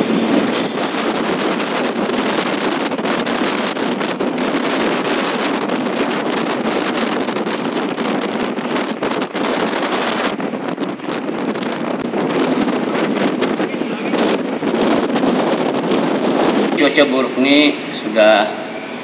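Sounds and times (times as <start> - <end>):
wind buffeting microphone: 0.0 - 19.0.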